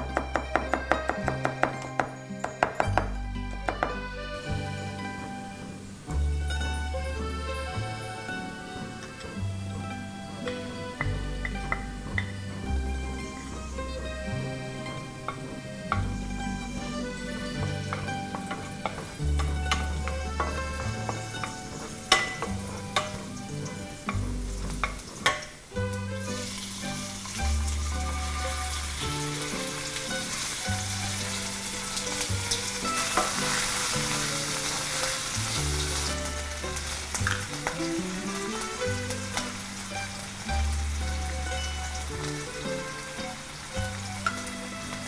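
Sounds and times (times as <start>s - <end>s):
background music with bass line: 0.0s - 45.0s
garlic sizzling in oil: 0.0s - 45.0s
wooden spatula scraping pan: 7.4s - 25.4s.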